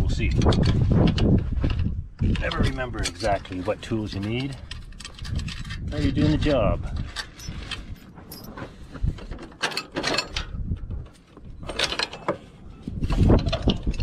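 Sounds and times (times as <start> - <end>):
wrenches clicking and clanking on bolts: 2.3 - 8.6, 9.2 - 14.0.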